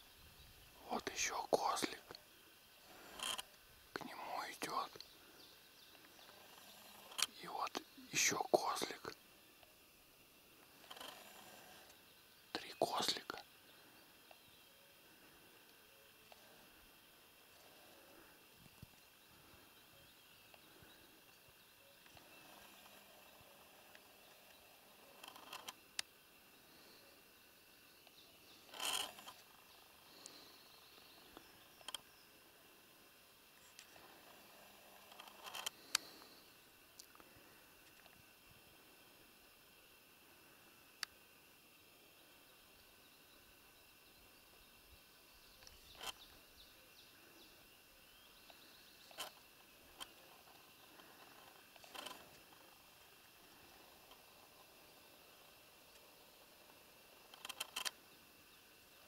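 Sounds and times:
faint insect chirring: 0.0 - 59.0
sharp clicks: 50.0 - 52.6, 57.3 - 58.0.

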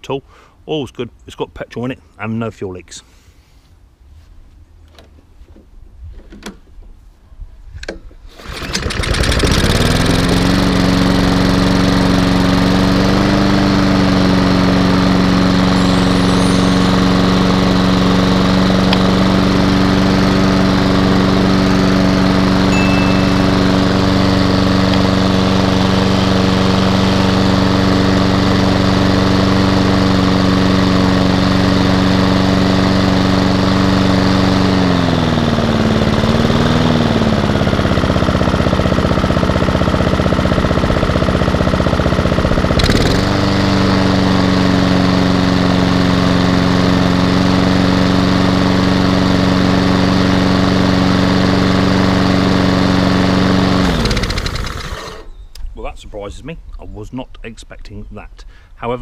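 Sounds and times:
lawnmower engine running: 8.3 - 55.4.

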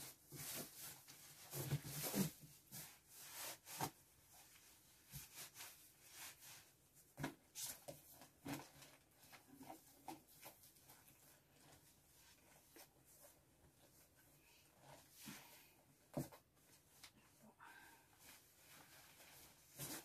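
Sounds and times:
clothes rustling: 18.1 - 20.0.

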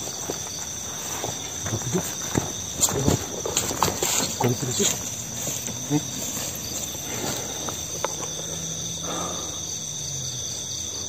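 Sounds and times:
night insects chirring: 0.0 - 11.0.

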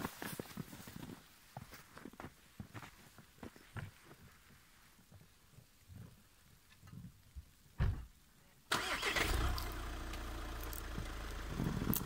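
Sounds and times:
thump: 7.8 - 8.1
car engine starting and idling: 8.7 - 12.0.

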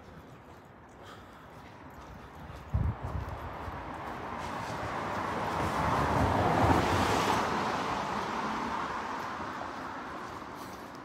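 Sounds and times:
car tyres swishing on wet road: 4.3 - 10.8.

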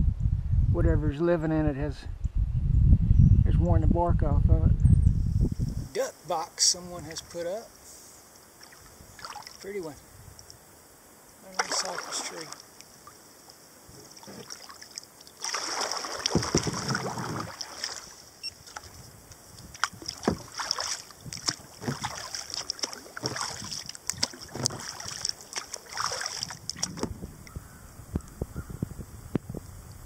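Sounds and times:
water dripping off paddle: 8.4 - 9.7, 11.5 - 27.1
paddle strokes splashing water: 8.5 - 9.7, 11.4 - 27.1.

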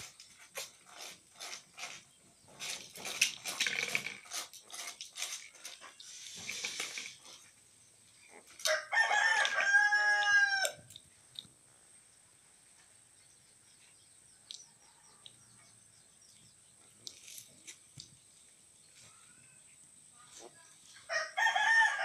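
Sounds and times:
rooster crowing: 8.6 - 10.8, 21.1 - 22.0.

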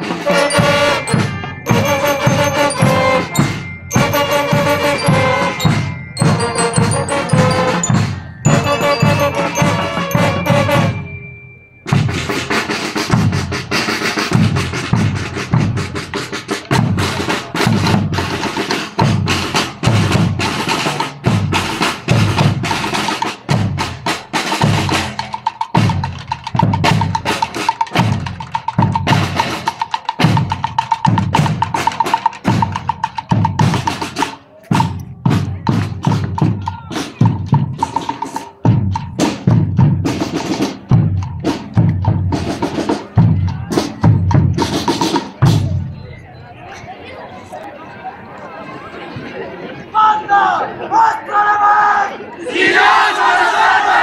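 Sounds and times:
bass drums beating: 0.0 - 11.1, 30.2 - 45.8
snare drum rolls: 11.9 - 45.8.

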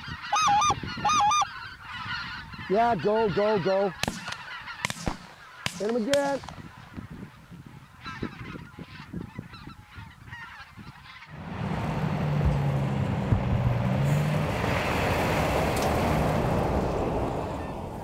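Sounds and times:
goose honking in flight: 0.0 - 11.4
truck engine drone: 11.3 - 18.0.

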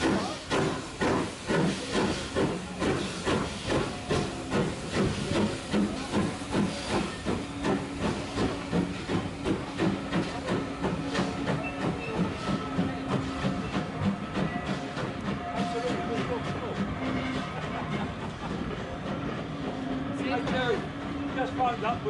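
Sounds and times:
steam hissing: 0.0 - 22.0
steam locomotive exhaust chuffs: 0.0 - 22.0.

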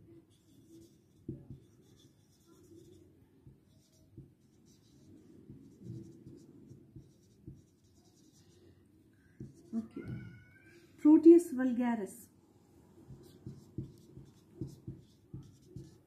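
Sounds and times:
marker writing on whiteboard: 0.0 - 10.4, 13.0 - 16.0
marker tip tapping: 13.1 - 16.0.

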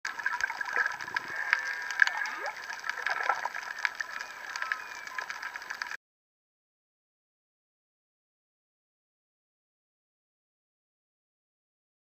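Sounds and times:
dense crackling clicks: 0.0 - 6.0
underwater wash: 0.0 - 6.0
whale song calls: 1.0 - 5.7.

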